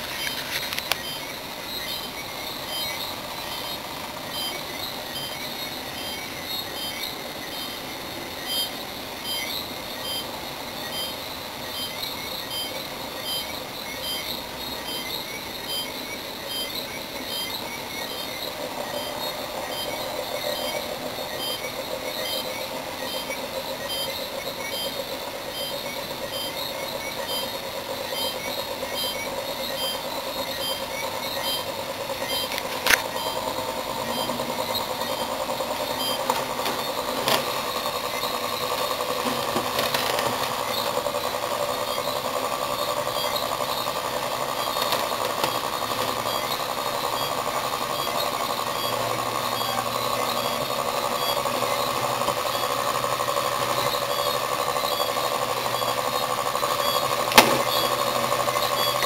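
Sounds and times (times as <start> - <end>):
fast high ticking of coils: 0.0 - 59.0
motor rotor whirring: 0.0 - 59.0
sharp click: 32.5 - 33.2, 57.3 - 57.8.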